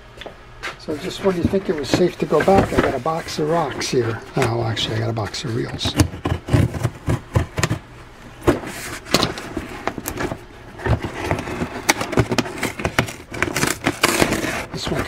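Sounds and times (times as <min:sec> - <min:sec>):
heavy objects clunking inside box: 0:01.4 - 0:04.9.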